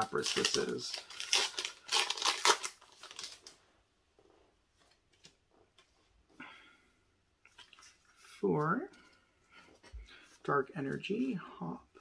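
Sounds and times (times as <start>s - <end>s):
foil wrapper tearing and crinkling: 0.0s - 3.6s
cards rustling and clicking: 0.1s - 3.6s, 4.8s - 6.0s, 7.5s - 8.4s.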